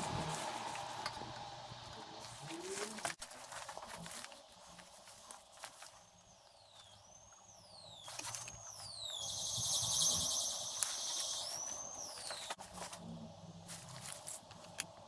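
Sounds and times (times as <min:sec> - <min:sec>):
high falling squeals: 0:06.0 - 0:12.6.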